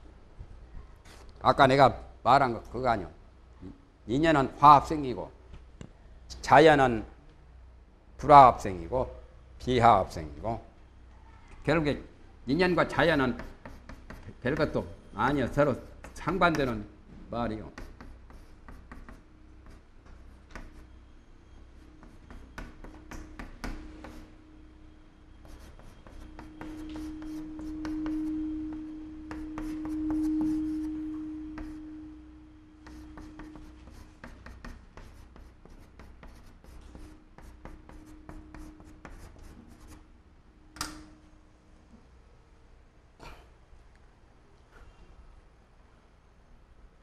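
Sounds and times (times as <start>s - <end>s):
steady low hum: 11.8s - 47.0s
chalk tapping on a blackboard: 13.2s - 14.8s, 15.6s - 16.8s, 17.6s - 20.9s, 21.8s - 24.4s, 25.4s - 32.0s, 32.8s - 40.0s.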